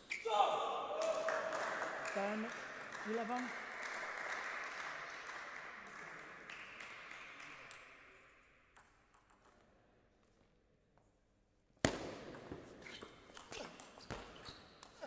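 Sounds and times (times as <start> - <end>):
applause: 1.0 - 8.2
table tennis ball bouncing: 8.7 - 9.6.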